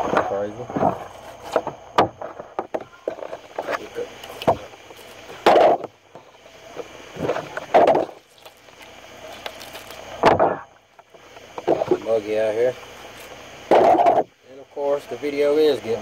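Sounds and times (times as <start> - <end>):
fish skin tearing: 7.3 - 10.2.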